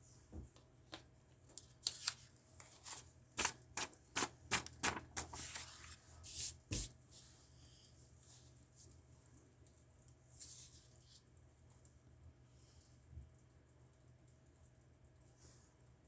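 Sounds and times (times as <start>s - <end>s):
paper swiped and rustling: 1.8s - 7.4s.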